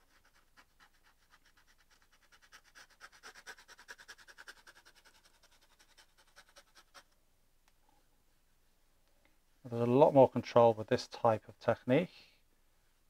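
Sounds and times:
pencil scratching on canvas: 0:00.0 - 0:07.2.

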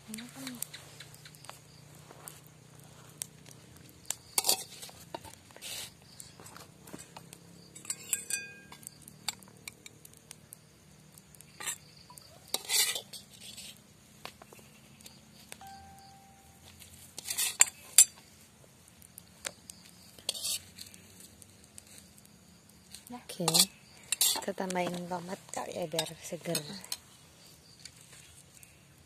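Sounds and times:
metal spatula scraping glass plate: 0:04.4 - 0:04.9, 0:12.5 - 0:13.7, 0:20.3 - 0:20.6, 0:23.5 - 0:24.5.

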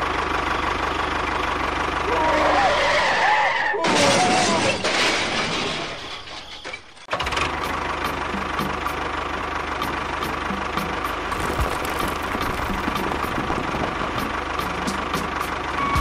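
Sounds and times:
engine idling with knocking chug: 0:07.1 - 0:16.0.

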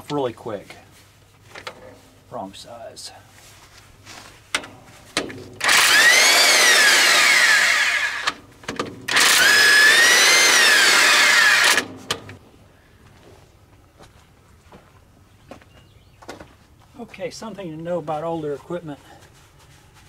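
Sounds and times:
cordless impact wrench whine: 0:04.5 - 0:12.4.

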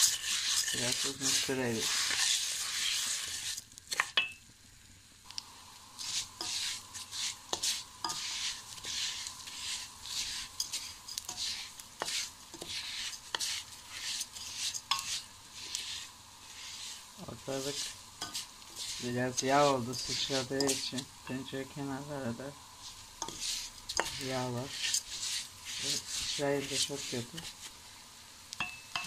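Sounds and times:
wooden spoon scraping: 0:00.0 - 0:04.3, 0:06.0 - 0:27.8, 0:28.6 - 0:29.0
grains sizzling in a pot: 0:00.0 - 0:29.0
spoon knocking against pot: 0:28.6 - 0:29.0.

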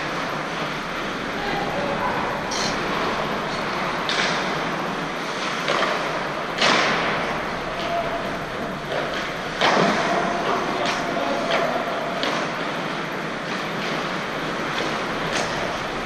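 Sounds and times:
rink background noise: 0:00.0 - 0:16.0.

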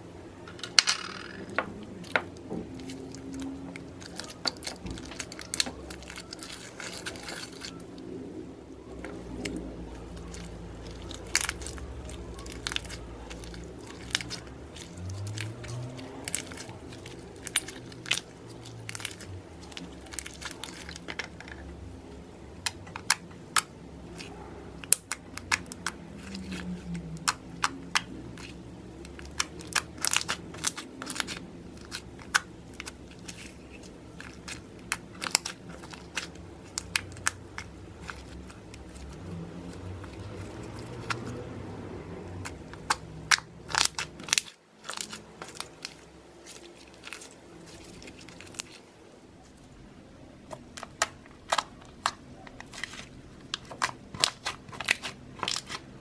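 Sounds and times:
slime squishing with clicks and pops: 0:22.6 - 0:39.1, 0:42.4 - 0:48.7, 0:50.5 - 0:52.8, 0:53.4 - 0:55.8.

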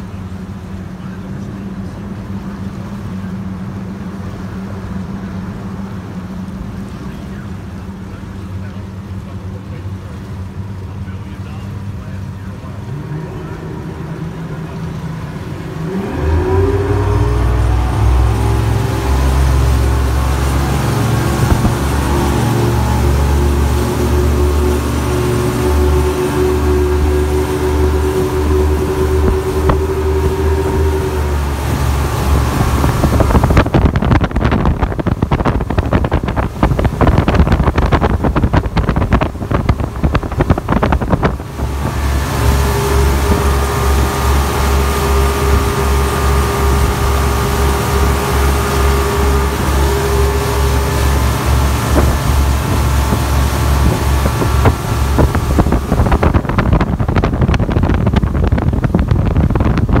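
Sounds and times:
outboard motors droning: 0:00.0 - 1:00.0
wind buffeting microphone: 0:13.4 - 1:00.0.

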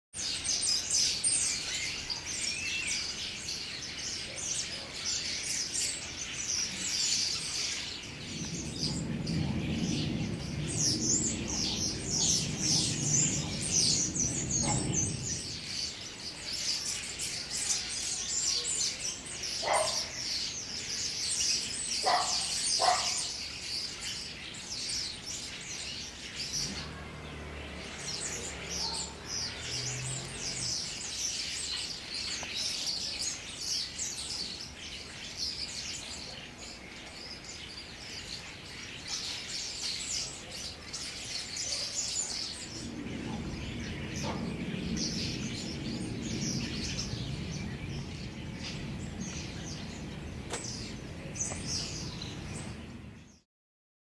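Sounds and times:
starlings chattering: 0:00.2 - 0:53.4
low rumble: 0:07.8 - 0:16.3, 0:26.5 - 0:31.0, 0:42.5 - 0:53.4.

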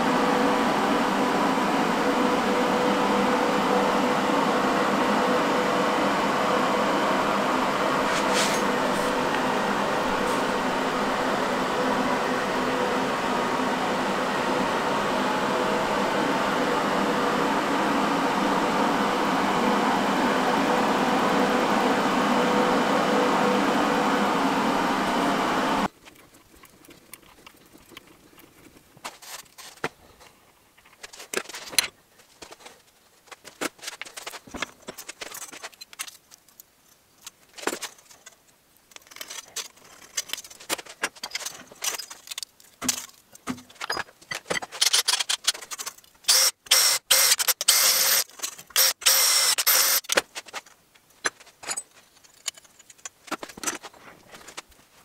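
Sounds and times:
steady machine noise: 0:00.0 - 0:25.9, 0:46.3 - 0:50.2
metal tools clinking: 0:51.4 - 0:53.8.

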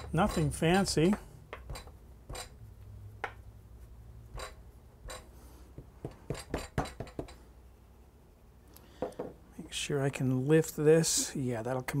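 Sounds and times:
hands patting dough on board: 0:05.1 - 0:07.4.

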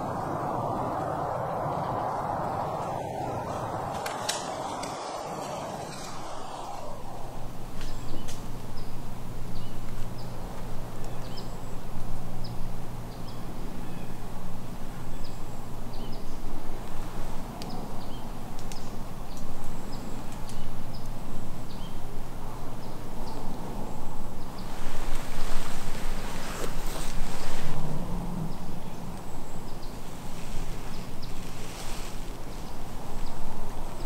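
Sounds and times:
steady low hum: 0:00.0 - 0:09.6
outdoor noise: 0:00.0 - 0:34.0.

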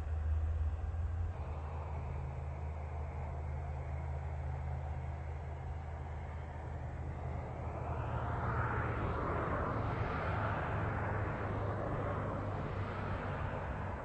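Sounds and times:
steady low hum: 0:00.0 - 0:14.0
vehicle passing by: 0:01.3 - 0:14.0.

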